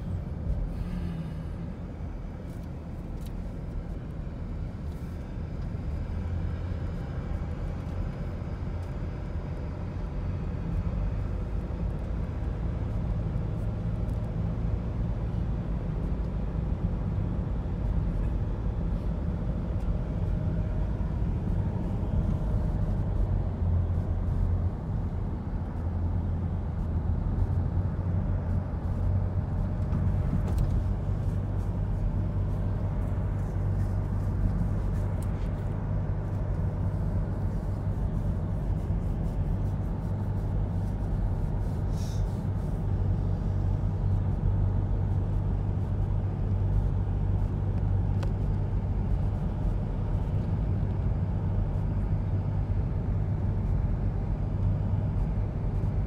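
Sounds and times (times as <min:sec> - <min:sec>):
car driving rumble: 0:00.0 - 0:56.0.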